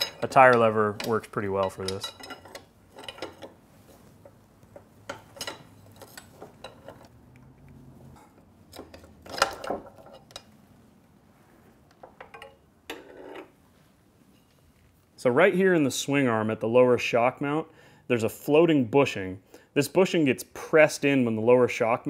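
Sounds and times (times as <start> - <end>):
steel lever clinking and scraping: 0.0 - 7.1, 8.2 - 10.6.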